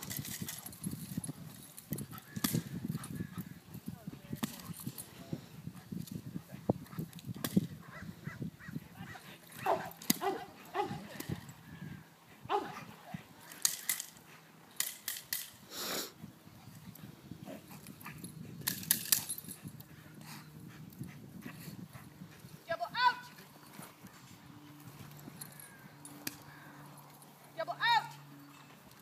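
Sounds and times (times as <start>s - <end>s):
dog barking: 9.1s - 11.0s, 12.5s - 12.9s.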